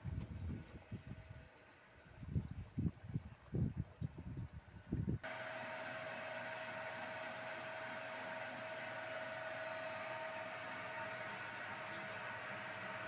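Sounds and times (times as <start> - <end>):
inverter hiss: 5.2 - 13.0
mid-pitched whine: 5.2 - 13.0.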